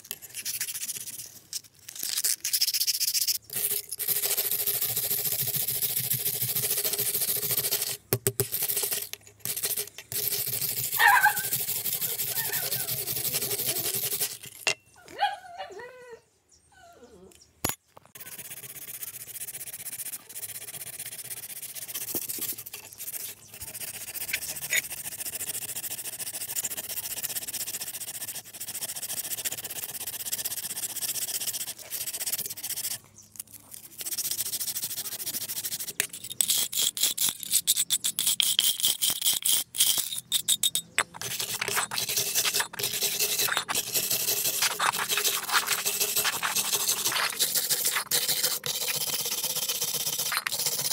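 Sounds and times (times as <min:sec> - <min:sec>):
wire brush scrubbing metal: 0:02.1 - 0:14.8, 0:33.7 - 0:50.9.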